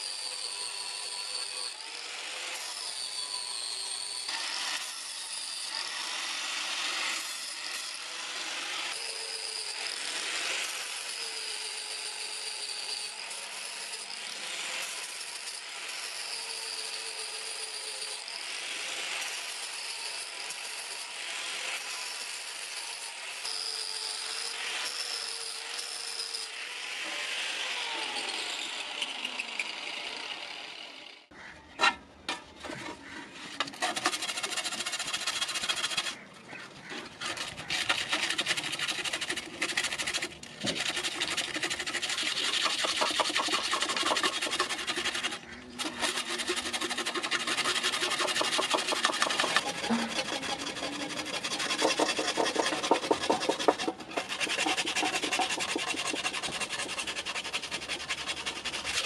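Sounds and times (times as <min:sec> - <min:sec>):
scouring metal plate: 0:31.8 - 0:59.0.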